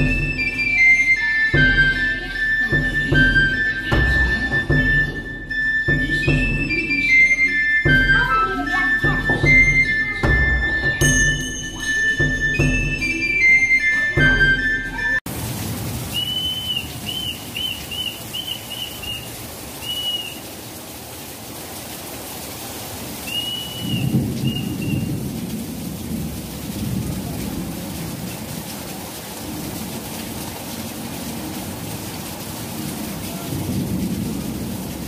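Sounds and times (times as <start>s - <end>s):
heavy rain: 0.0s - 35.0s
thunder rumble: 15.3s - 20.5s, 23.2s - 35.0s
bird chirping: 16.2s - 20.4s, 23.3s - 25.1s.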